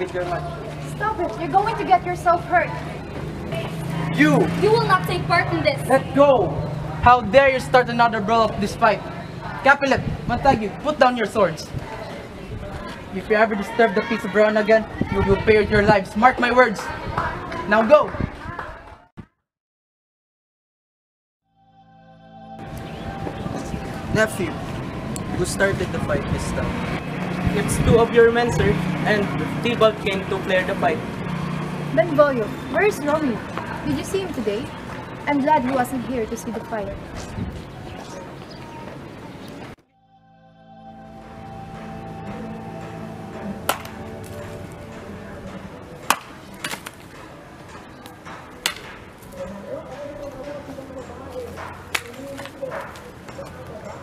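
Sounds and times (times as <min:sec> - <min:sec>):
soft background music: 0:21.6 - 0:28.8, 0:39.9 - 0:46.6
wooden stick whacks: 0:43.6 - 0:44.4, 0:46.0 - 0:47.0, 0:48.6 - 0:49.0, 0:51.9 - 0:52.5.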